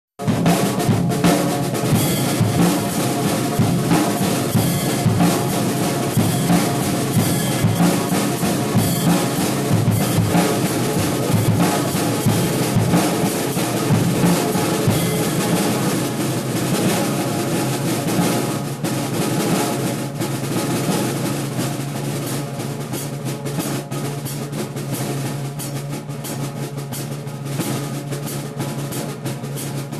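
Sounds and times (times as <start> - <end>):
backing music: 0.2 - 17.5
acoustic drum kit playing: 0.2 - 29.9.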